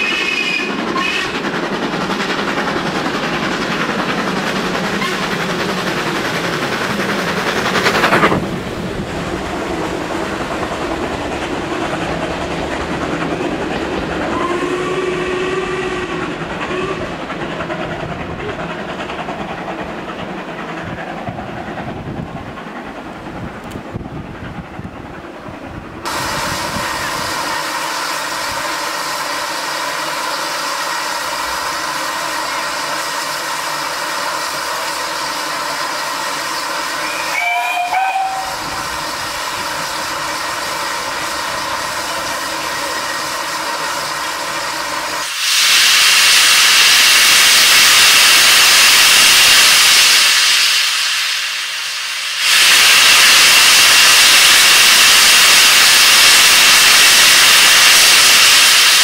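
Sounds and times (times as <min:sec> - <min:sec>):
locomotive whistle: 0:00.0 - 0:01.4, 0:05.0 - 0:05.3, 0:14.3 - 0:17.1, 0:37.0 - 0:38.9
steam hissing: 0:00.0 - 0:22.8, 0:26.0 - 0:59.0
loud rush of steam: 0:00.0 - 0:59.0.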